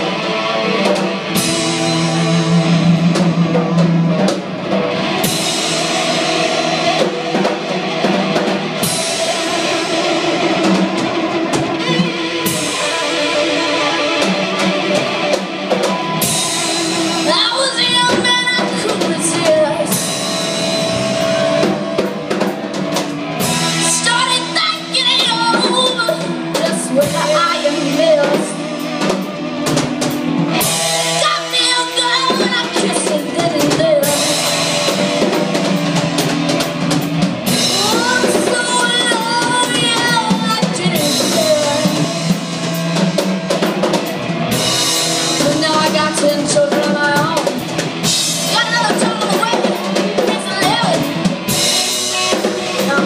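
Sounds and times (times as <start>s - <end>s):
drum kit: 0.0s - 53.0s
electric guitars: 0.0s - 53.0s
woman singing: 17.2s - 20.0s, 23.8s - 28.6s, 31.2s - 34.4s, 37.7s - 42.0s, 45.4s - 47.5s.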